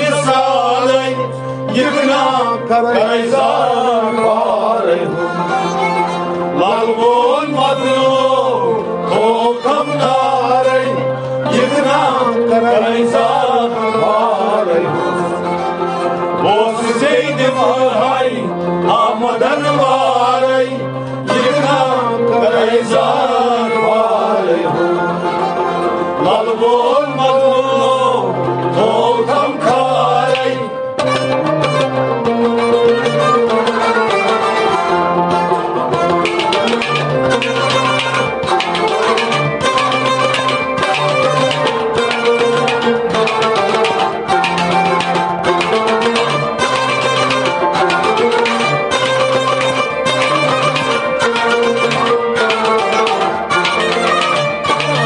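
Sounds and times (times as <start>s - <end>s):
man singing devotional song: 0.0s - 5.6s, 6.5s - 15.2s, 16.4s - 25.1s, 26.2s - 30.8s
instrumental accompaniment: 0.0s - 55.0s.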